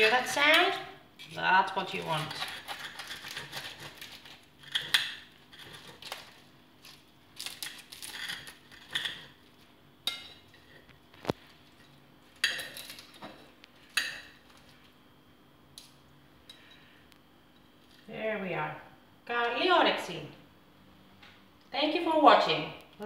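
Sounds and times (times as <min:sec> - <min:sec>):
crunching pastry: 0:01.8 - 0:11.8
cutlery scraping: 0:02.0 - 0:06.2, 0:08.0 - 0:09.4.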